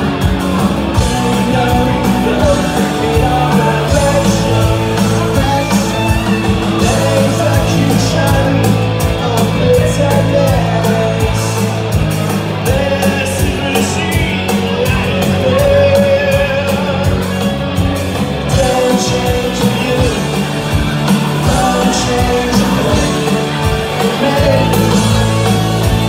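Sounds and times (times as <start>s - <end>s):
man singing: 0.0s - 17.6s, 18.4s - 26.0s
live rock band playing: 0.0s - 26.0s.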